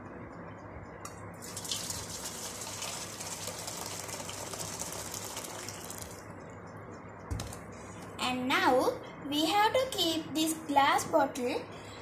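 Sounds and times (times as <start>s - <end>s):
hot water pouring into metal basin: 1.4s - 6.2s.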